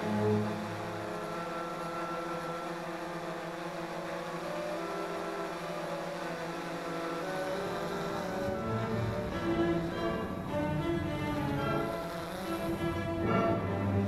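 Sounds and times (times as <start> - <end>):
orchestral string chords: 8.5 - 14.0.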